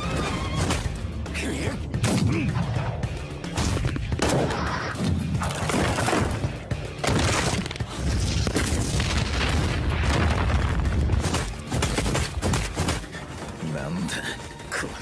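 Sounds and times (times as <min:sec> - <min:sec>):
background music: 0:00.0 - 0:15.0.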